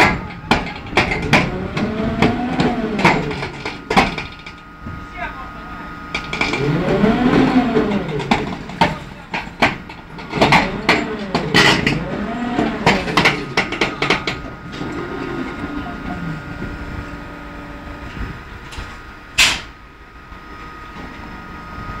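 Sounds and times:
metallic knocks and clanks: 0.0 - 4.6, 6.1 - 15.3
low groaning machinery tones: 0.0 - 22.0.

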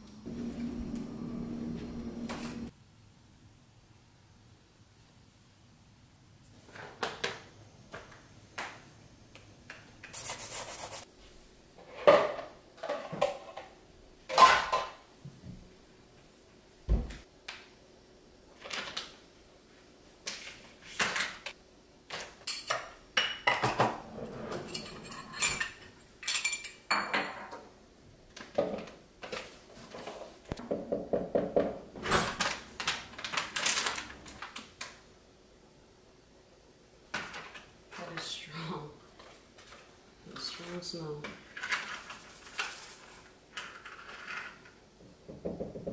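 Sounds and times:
dishes and utensils clinking: 22.4 - 27.6.

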